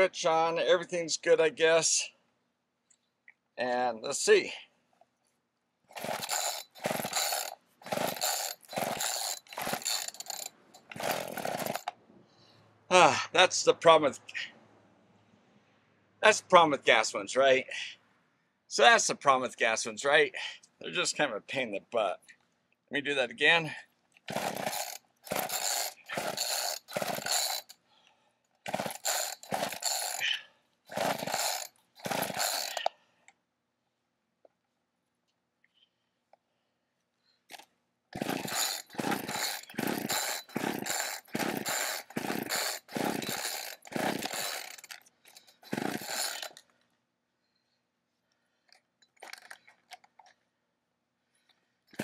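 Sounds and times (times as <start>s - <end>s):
chainsaw engine cranking: 5.9s - 12.0s, 24.3s - 27.8s, 28.6s - 32.9s, 37.5s - 46.7s, 49.2s - 50.3s
recoil starter cord pulls: 5.9s - 12.0s, 24.3s - 27.8s, 28.6s - 30.2s, 30.9s - 32.9s, 37.5s - 46.7s, 49.2s - 50.4s.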